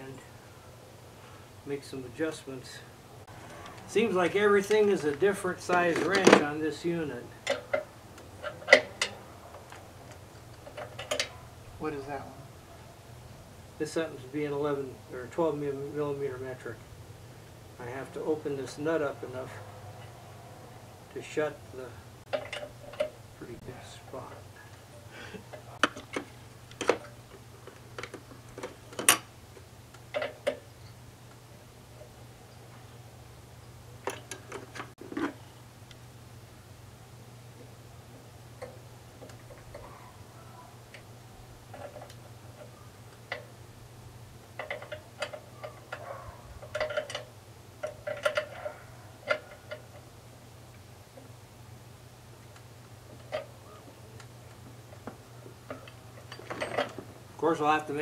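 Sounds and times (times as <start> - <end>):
hand tools clicking on metal: 44.5 - 50.1.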